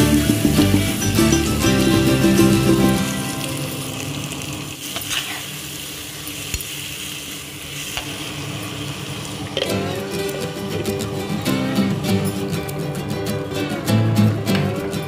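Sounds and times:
guitar music: 0.0s - 4.9s, 8.3s - 15.0s
food sizzling in a pot: 0.0s - 14.1s.

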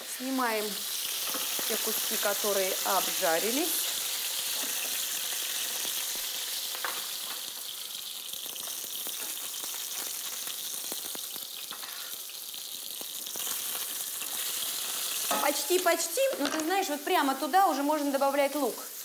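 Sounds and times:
chicken sizzling in oil: 0.0s - 19.0s
spatula and fork scraping pan: 11.7s - 12.2s.

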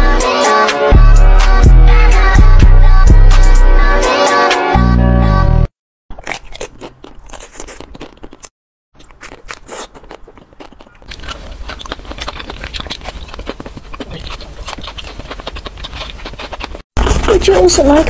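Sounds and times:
ice cream bars crunching: 6.1s - 18.0s.

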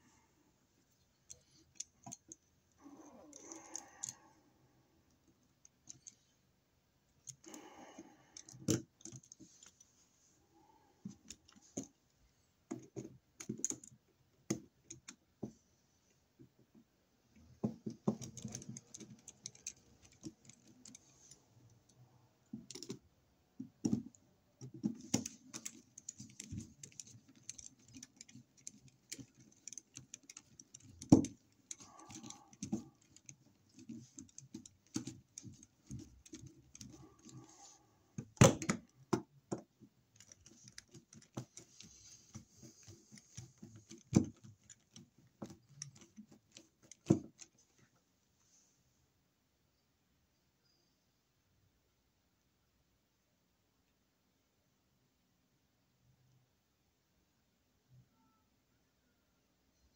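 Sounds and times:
screwdriver clicking on metal screws: 24.6s - 37.6s.

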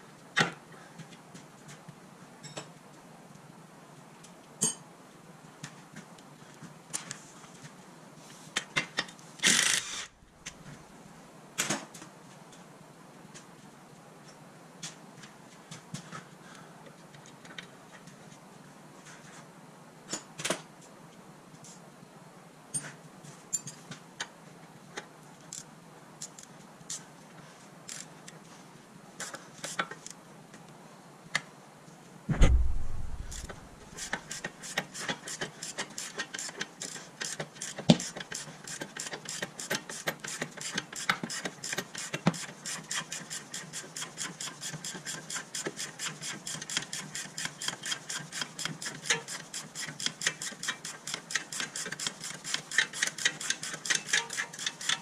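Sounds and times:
heavy thump: 32.3s - 33.8s
sharp knock: 32.3s - 33.8s.

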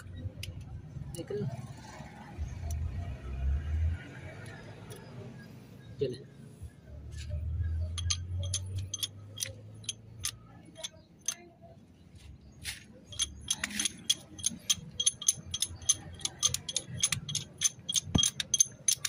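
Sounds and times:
hydraulic jack metallic clinks: 7.8s - 11.4s, 13.1s - 19.0s.

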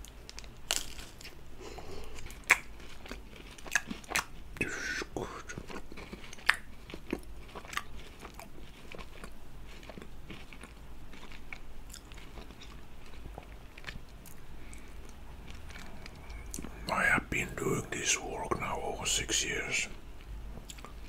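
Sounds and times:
crunchy chewing: 0.0s - 21.0s
mouth sounds: 4.6s - 5.7s, 16.5s - 20.0s.

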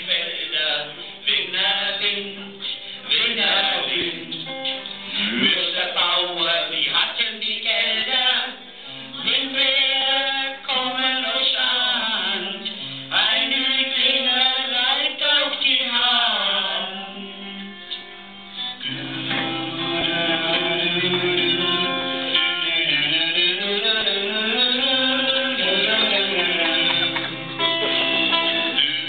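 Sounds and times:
song with sung vocals: 0.0s - 29.0s.

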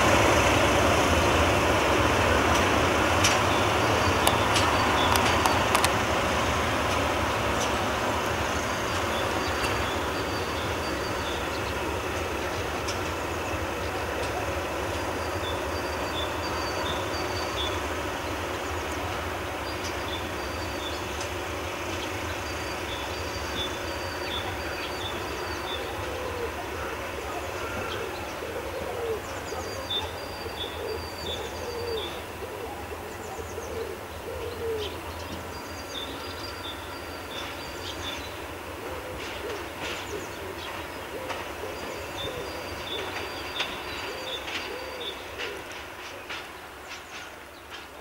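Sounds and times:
diesel locomotive engine droning: 0.0s - 48.0s
bird cooing: 25.4s - 35.1s, 38.8s - 43.2s, 44.0s - 45.7s.

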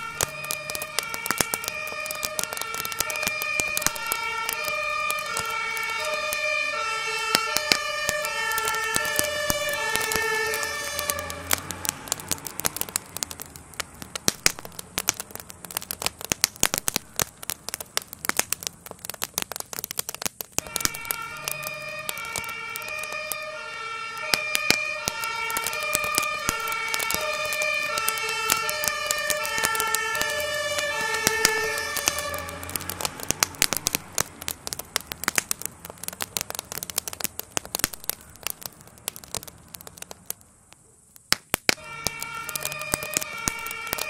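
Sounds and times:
two-tone emergency sirens: 0.0s - 13.2s, 20.6s - 34.2s, 41.8s - 44.0s
burning shed crackling and popping: 0.0s - 44.0s.

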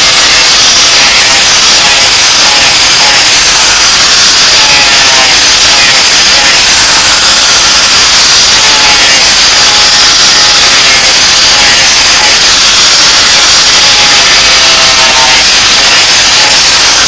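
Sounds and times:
angle grinder grinding steel: 0.0s - 17.0s.

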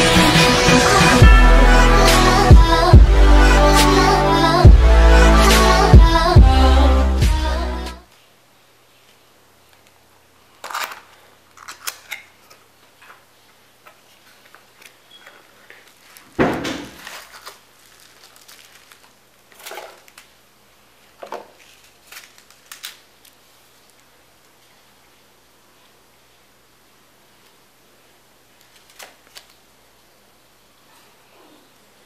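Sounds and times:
plastic wrap rustling: 10.4s - 24.9s.

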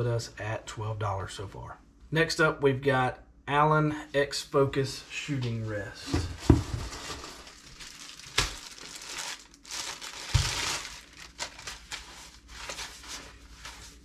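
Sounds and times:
plastic bag crinkling: 6.4s - 14.0s.

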